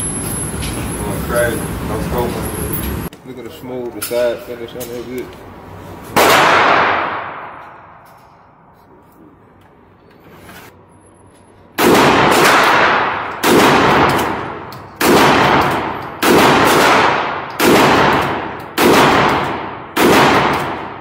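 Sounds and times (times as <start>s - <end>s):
shotgun blasts echoing indoors: 6.2s - 8.0s, 11.8s - 21.0s.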